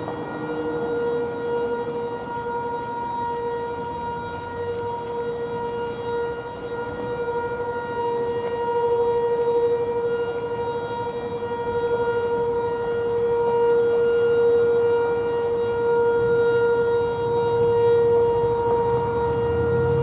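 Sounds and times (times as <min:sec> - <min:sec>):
warning siren steady tone: 0:00.0 - 0:20.0.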